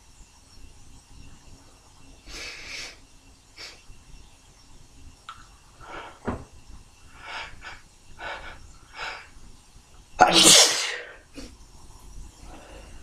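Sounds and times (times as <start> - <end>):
person sneezing loudly: 10.2 - 11.2.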